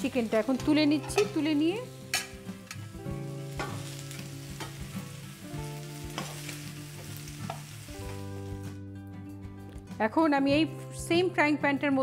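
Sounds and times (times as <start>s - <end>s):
chicken sizzling in hot oil: 0.0s - 8.8s.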